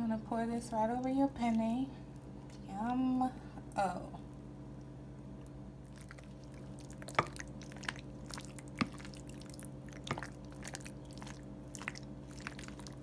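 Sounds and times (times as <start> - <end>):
steady low hum: 0.0 - 13.0
wet squelching of pasta sauce: 5.8 - 13.0.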